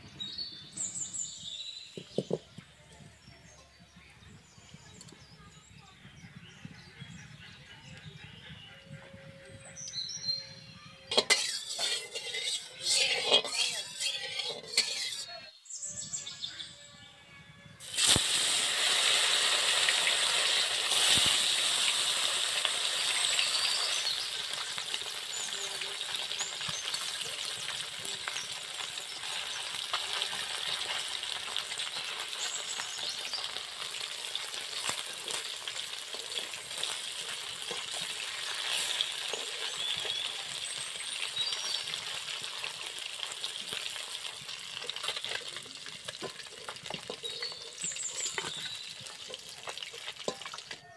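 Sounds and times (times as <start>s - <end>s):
fish sizzling in hot oil: 11.1s - 15.2s, 17.8s - 50.8s
metal spatula scraping: 11.1s - 15.5s, 36.2s - 40.2s.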